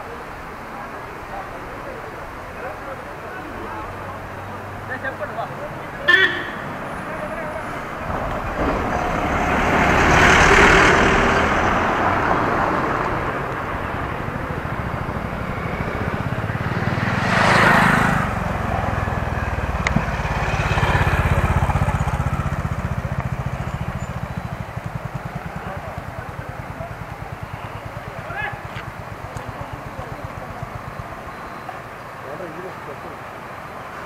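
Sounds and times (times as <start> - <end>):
motorcycle engine rumbling: 0.0 - 34.0
truck passing close: 2.6 - 34.0
vehicle rushing by: 2.6 - 34.0.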